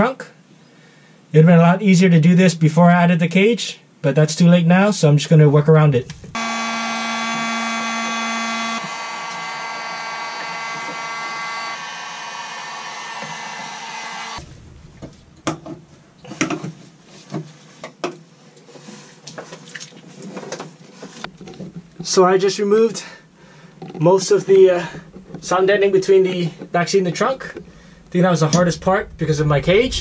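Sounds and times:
heat gun blowing: 6.4s - 14.5s.

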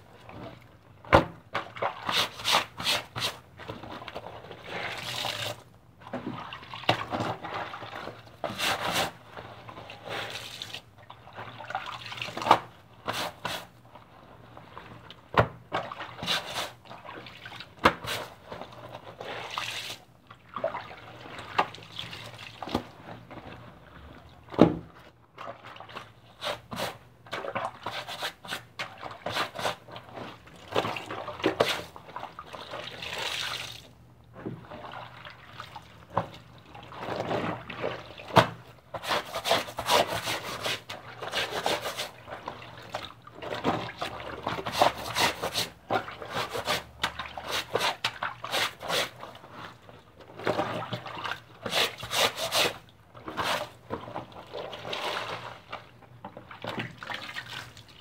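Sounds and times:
wet clothes splashing in water: 29.8s - 33.9s, 42.1s - 52.9s, 53.5s - 58.0s.

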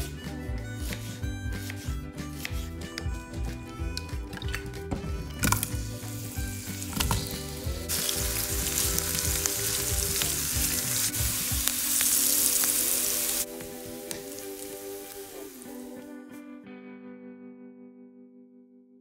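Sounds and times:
onions sizzling in oil: 5.9s - 16.0s.

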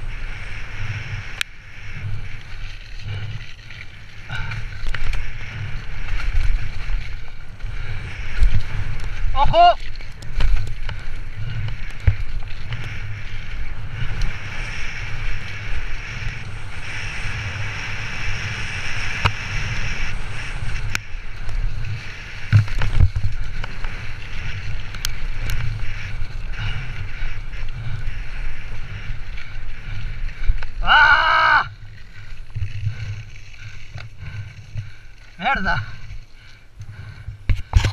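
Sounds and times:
tyre noise on dirt: 0.0s - 37.9s
wind rumble on microphone: 0.0s - 37.9s
bike clattering over bumps: 1.8s - 15.8s, 18.6s - 37.9s.

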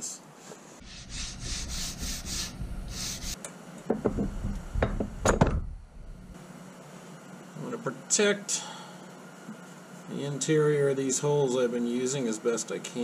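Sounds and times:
hand file rasping wood: 0.8s - 3.4s
sharp knocks: 3.9s - 5.8s.

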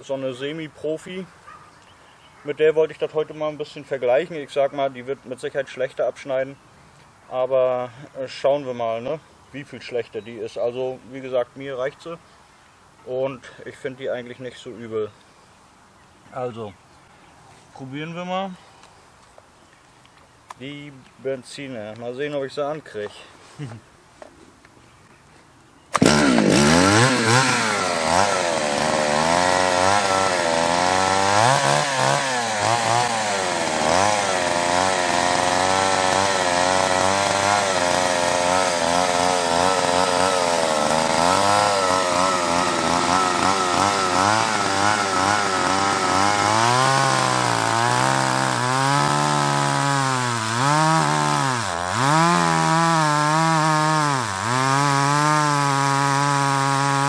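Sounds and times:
chainsaw running: 25.9s - 57.0s.

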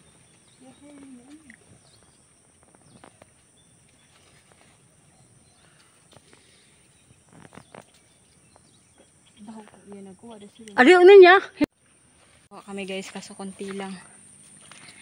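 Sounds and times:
insects droning: 0.0s - 15.0s
leaves rustling and twigs snapping: 7.3s - 8.4s.

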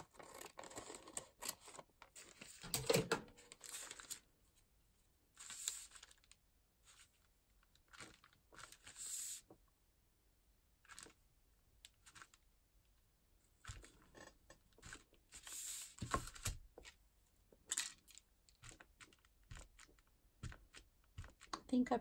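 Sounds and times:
rice paper rustling: 3.4s - 4.2s, 5.4s - 7.1s
plastic blocks knocking and clicking: 17.6s - 21.7s.

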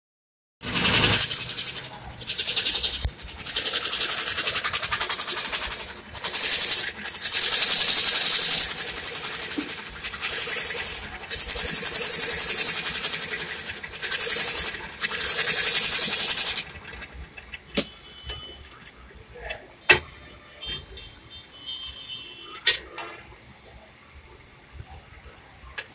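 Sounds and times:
scroll saw rattling: 0.6s - 17.9s.

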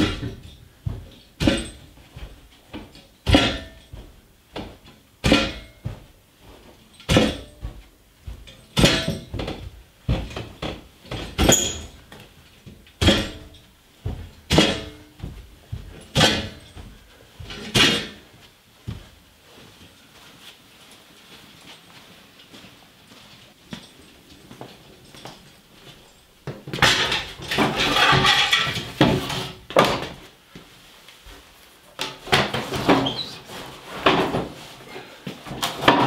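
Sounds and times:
log thumping down carpeted stairs: 0.0s - 19.2s.

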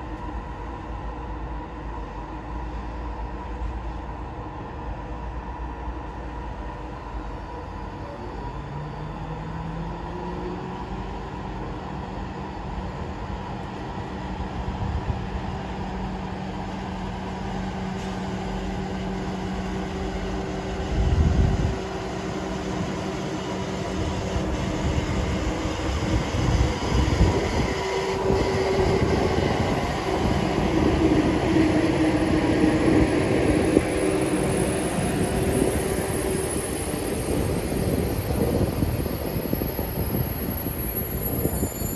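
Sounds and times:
train traction hum: 0.0s - 41.9s
train wheels rumbling: 8.4s - 41.9s.

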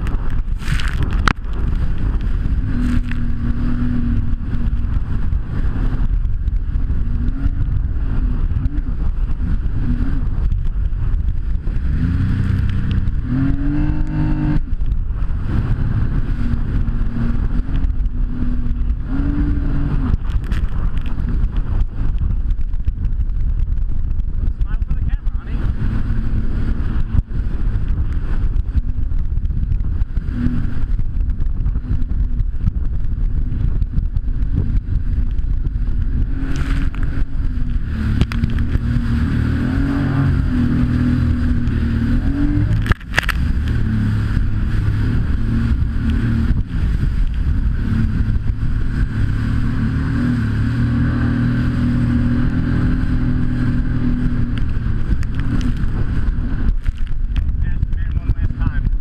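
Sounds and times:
jet ski engine running: 0.0s - 59.0s.

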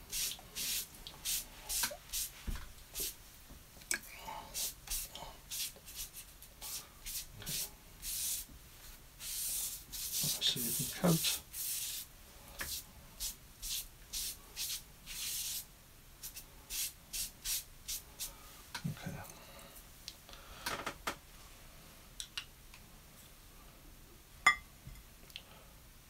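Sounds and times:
damp sponge rubbing paper: 9.2s - 12.1s.

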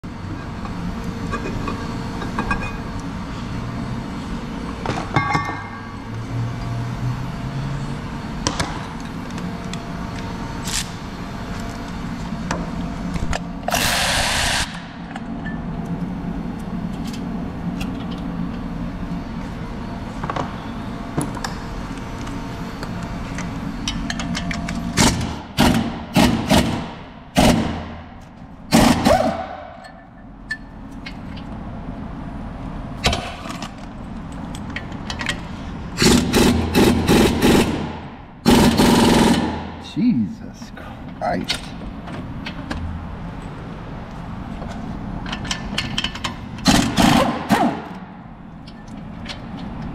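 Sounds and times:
steady low hum: 0.0s - 49.9s
impact wrench bursts: 13.6s - 14.8s, 28.7s - 29.5s, 36.0s - 39.8s, 46.6s - 48.0s.

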